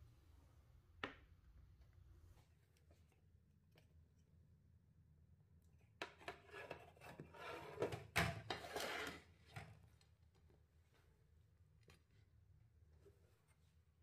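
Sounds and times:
kitchen scraping and rubbing: 6.1s - 9.6s.

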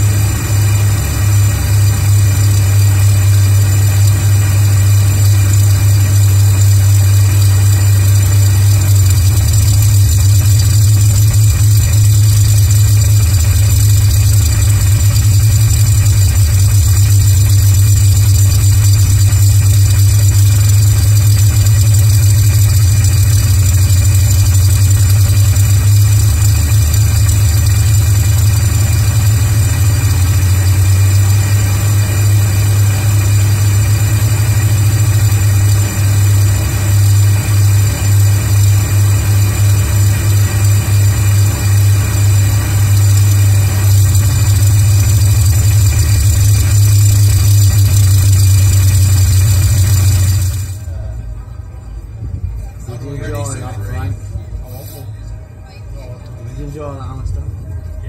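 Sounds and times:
aircraft engine droning: 0.0s - 58.0s.

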